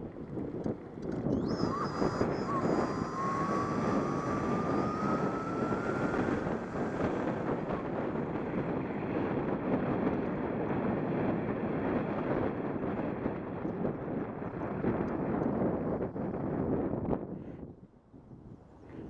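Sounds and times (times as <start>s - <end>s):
wind rushing over microphone: 0.0s - 19.0s
electric motor whine: 0.9s - 9.8s.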